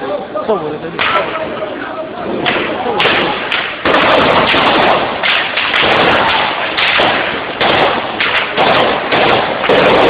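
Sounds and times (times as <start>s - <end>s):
gunshots with echo: 2.4s - 10.0s.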